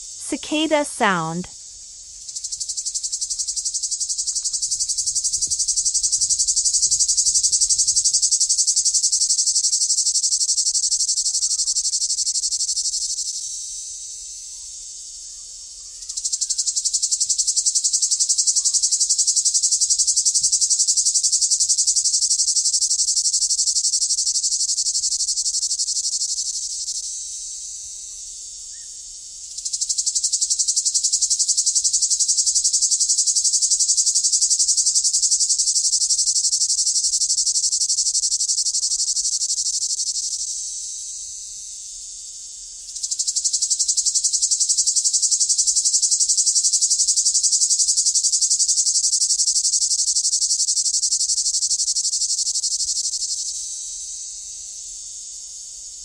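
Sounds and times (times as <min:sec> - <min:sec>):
cicada buzzing: 0:29.6 - 0:55.4.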